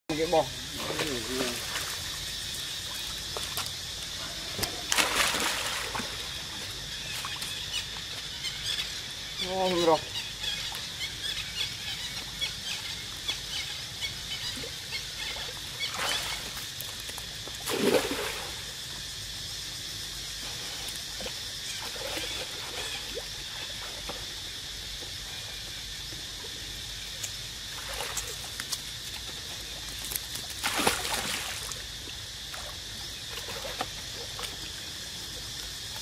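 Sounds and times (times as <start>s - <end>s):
water splashing and lapping: 0.6s - 8.1s, 14.6s - 18.8s, 20.5s - 24.4s, 27.2s - 36.0s.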